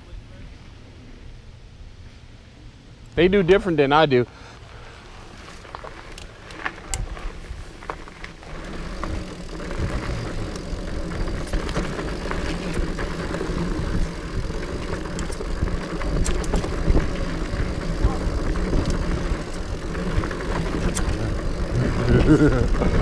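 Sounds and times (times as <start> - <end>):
bike rattling: 4.7 - 23.0
bike tyres rumbling on dirt: 4.7 - 23.0
light clicks and crunches: 5.3 - 22.7.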